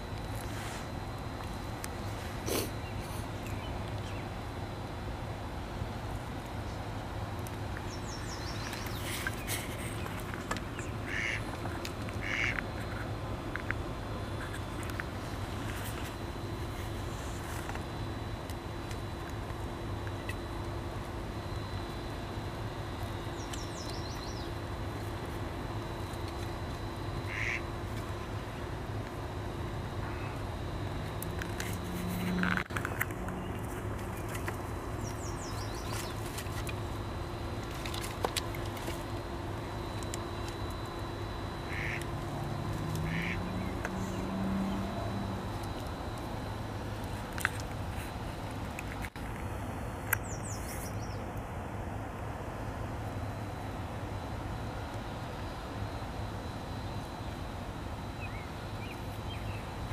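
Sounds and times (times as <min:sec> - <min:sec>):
steady low hum: 0:00.0 - 0:59.9
beaver chewing snaps and crunches: 0:47.0 - 0:50.2.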